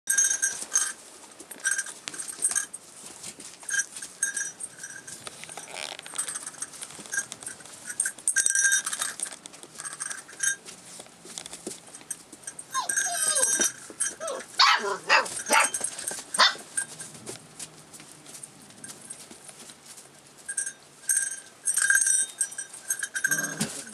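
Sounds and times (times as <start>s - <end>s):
paws scuffling on pads: 0.7s - 8.1s, 8.8s - 21.3s
puppy whining: 12.7s - 15.8s
puppy yips and barks: 12.7s - 15.8s.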